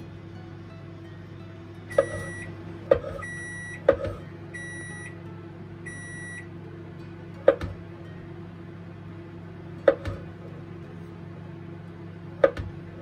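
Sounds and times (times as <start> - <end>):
kitchen appliance beeping: 1.8 - 5.2, 5.8 - 6.5.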